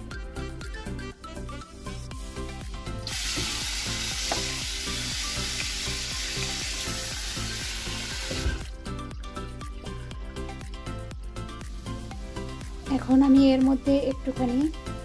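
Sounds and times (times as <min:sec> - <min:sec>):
background music: 0:00.0 - 0:15.0
tap water running: 0:03.0 - 0:08.8.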